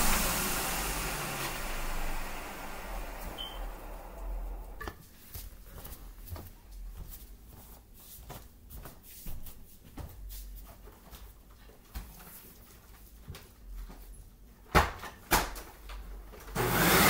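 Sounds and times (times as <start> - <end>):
low steady noise: 0.0 - 5.6
light footsteps on wood floor: 5.0 - 14.2.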